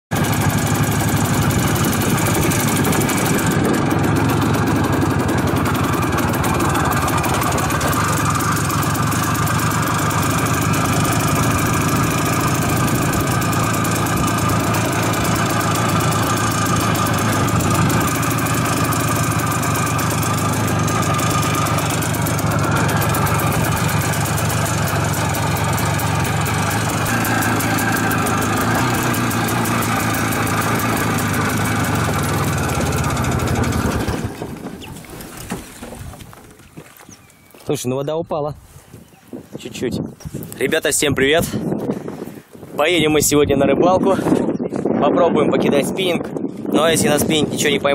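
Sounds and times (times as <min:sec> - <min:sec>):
vehicle engine running: 0:00.1 - 0:35.2.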